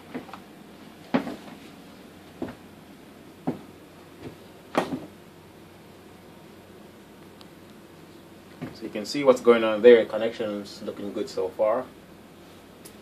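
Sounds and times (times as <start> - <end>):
hands handling parts knocks: 1.1 - 1.6, 2.3 - 2.6, 3.4 - 5.2.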